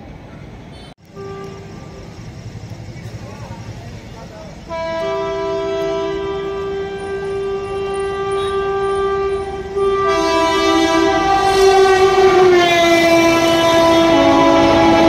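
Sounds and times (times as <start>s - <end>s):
train horn: 0.7s - 2.1s, 4.7s - 15.0s.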